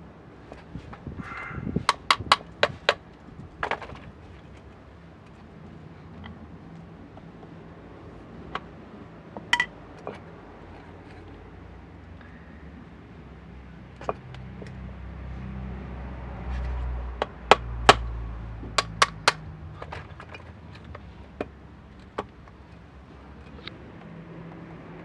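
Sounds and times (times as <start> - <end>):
hammer tapping on metal: 1.9 - 3.0, 9.5 - 9.7, 17.2 - 19.5.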